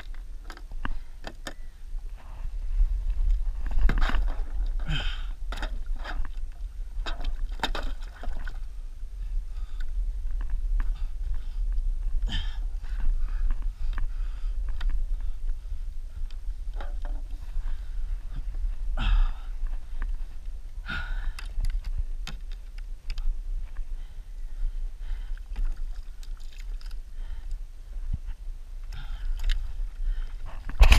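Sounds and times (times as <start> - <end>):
steady low rumble: 0.0 - 30.9
paddle splashes and drips: 25.4 - 27.0.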